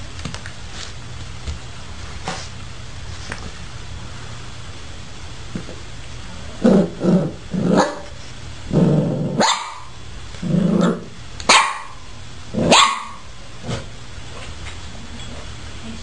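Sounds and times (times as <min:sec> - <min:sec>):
puppy growling: 0:06.5 - 0:08.1, 0:08.7 - 0:11.2
puppy yapping: 0:09.4 - 0:10.0, 0:11.5 - 0:12.0, 0:12.7 - 0:13.2.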